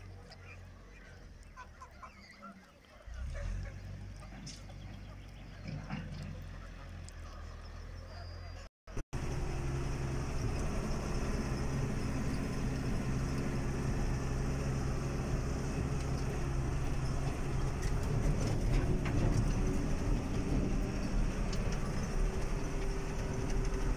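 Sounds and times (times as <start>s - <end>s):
tractor engine running: 0.0s - 23.9s
knocks and rattles: 15.8s - 23.9s.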